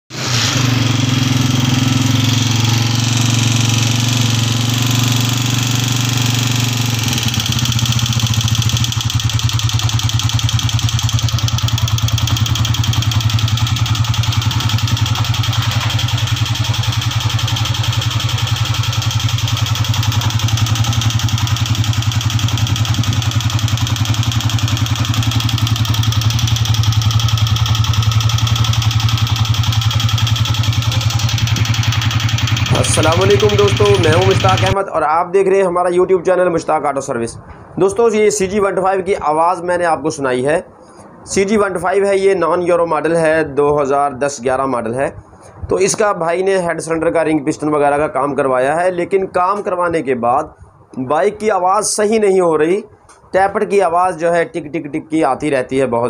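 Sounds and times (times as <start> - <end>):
motorcycle engine idling: 0.7 - 34.8
tappet ticking: 7.1 - 34.8.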